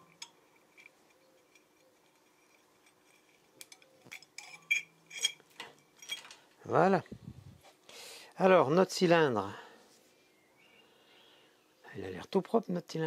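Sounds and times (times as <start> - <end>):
metal cylinder clinking: 0.0 - 6.5.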